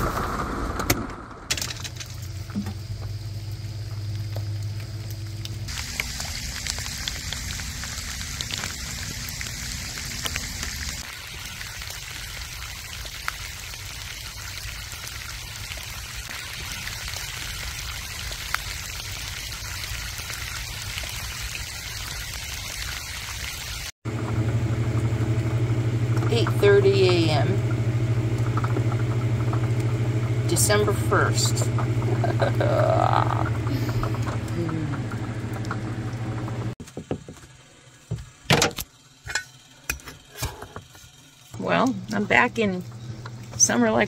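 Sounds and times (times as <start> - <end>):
rain falling: 0.0 - 23.9, 25.0 - 36.8
low steady hum: 24.1 - 44.0.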